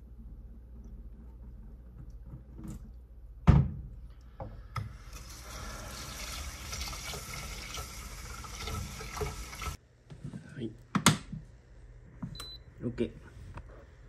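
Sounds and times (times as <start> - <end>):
water running from a tap: 4.9 - 9.8.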